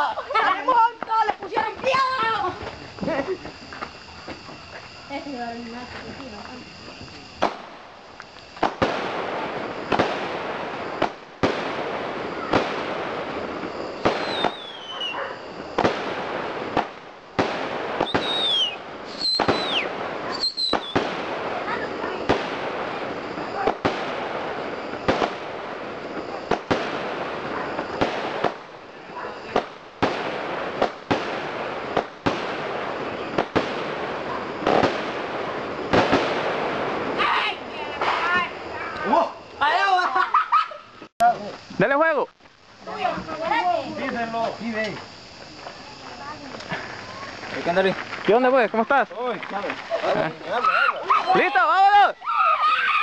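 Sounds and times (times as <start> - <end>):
firework bangs: 0.0 - 40.0
firework hiss and crackle: 0.0 - 53.0
falling firework whistle: 1.8 - 39.4, 50.6 - 53.0.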